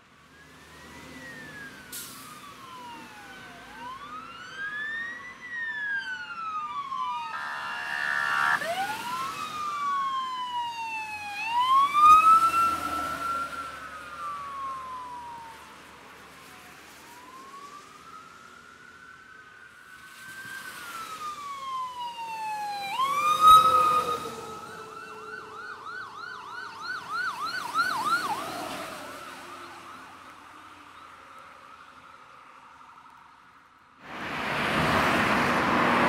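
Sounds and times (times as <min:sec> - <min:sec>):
sirens wailing: 0:00.1 - 0:36.0
tyres hissing on wet road: 0:00.9 - 0:03.2, 0:34.0 - 0:36.0
vehicle horn blast: 0:07.4 - 0:08.4.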